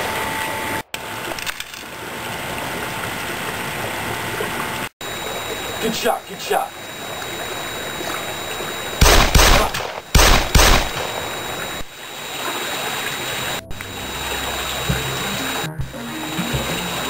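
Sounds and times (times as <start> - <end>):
fountain trickling: 0.7 - 9.0, 11.0 - 17.0
gunshots: 9.0 - 11.6.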